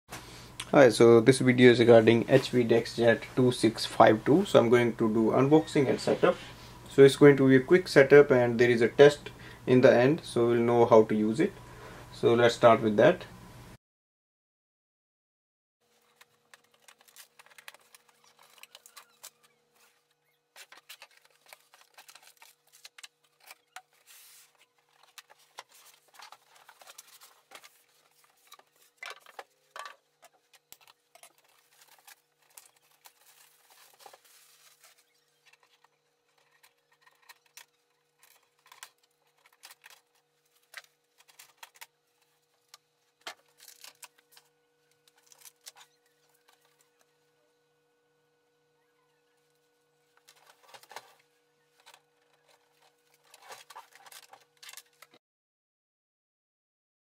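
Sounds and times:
faint steady hum: 0:00.1 - 0:13.8, 0:15.9 - 0:55.2
packaging rustling and crinkling: 0:15.9 - 0:47.0, 0:50.1 - 0:55.2.

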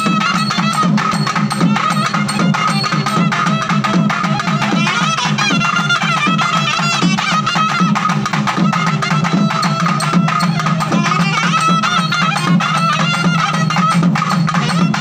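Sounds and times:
rapid drumming: 0:00.0 - 0:15.0
wind instrument melody: 0:00.0 - 0:15.0.

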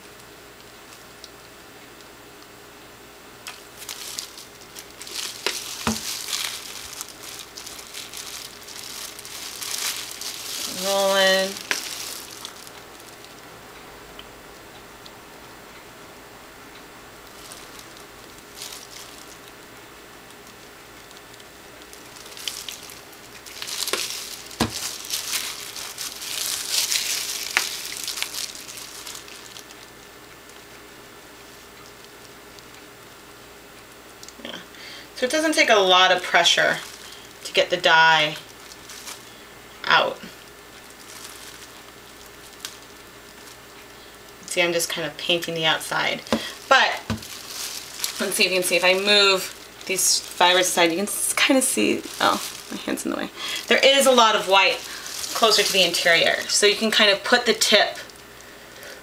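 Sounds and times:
plastic crinkling: 0:03.4 - 0:13.4, 0:17.2 - 0:33.2, 0:35.2 - 0:59.0.

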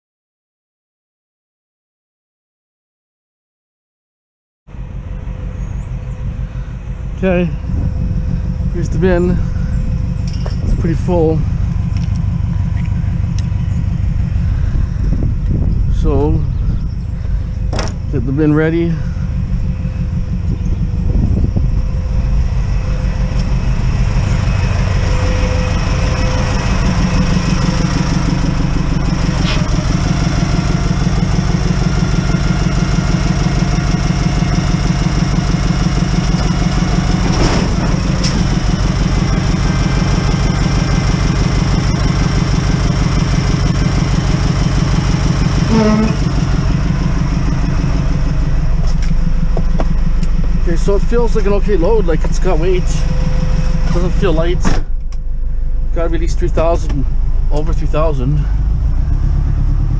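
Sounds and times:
truck engine running: 0:04.7 - 0:59.9
metal clunks: 0:10.2 - 0:10.8, 0:17.7 - 0:18.1, 0:37.2 - 0:38.5.

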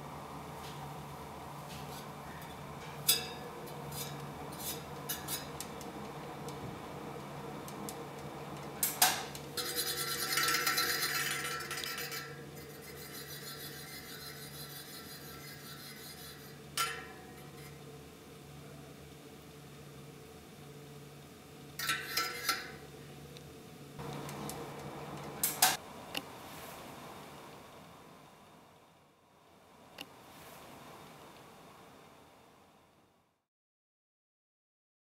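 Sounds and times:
steady low hum: 0:00.0 - 0:33.4
spinning bicycle wheel: 0:08.6 - 0:16.6.

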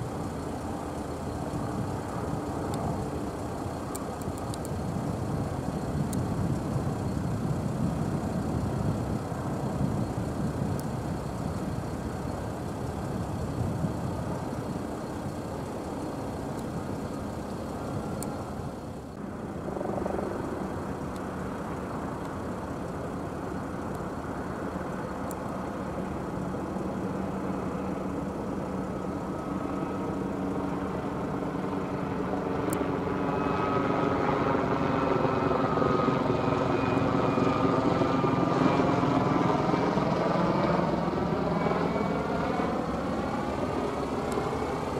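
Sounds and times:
helicopter engine and rotor: 0:00.0 - 0:44.9.

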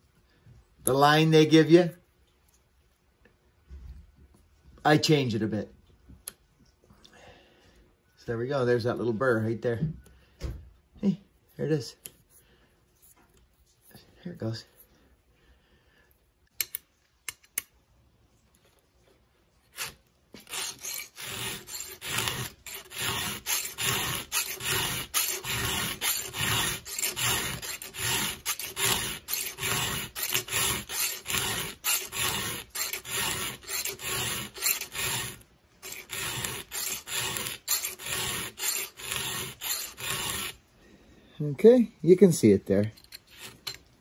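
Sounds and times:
file rasping on chainsaw chain: 0:19.8 - 0:40.6, 0:43.0 - 0:43.8.

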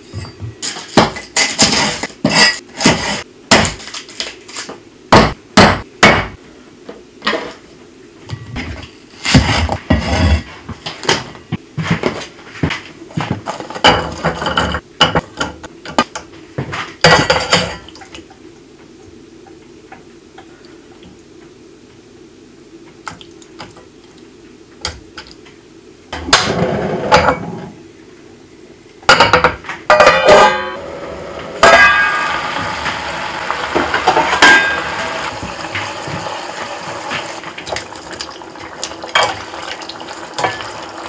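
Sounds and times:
low steady hum: 0:13.0 - 0:35.9.

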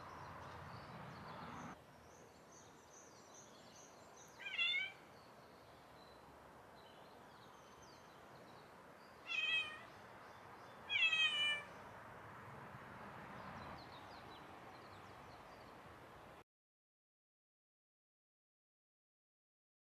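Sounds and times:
cat meowing: 0:04.4 - 0:05.0, 0:09.3 - 0:09.9, 0:10.9 - 0:11.7.

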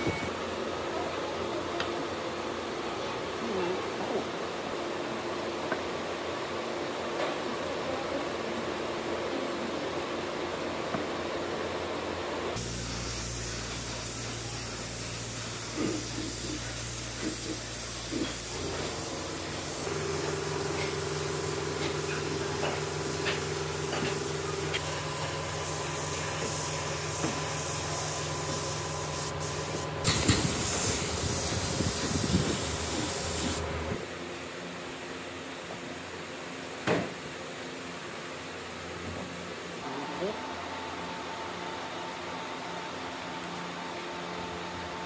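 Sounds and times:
spray gun hissing: 0:12.6 - 0:33.7.

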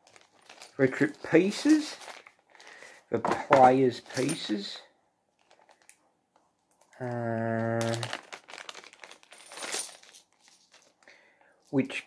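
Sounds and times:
packaging crinkling: 0:00.0 - 0:00.8, 0:01.8 - 0:02.9, 0:05.4 - 0:06.0, 0:07.6 - 0:10.8.

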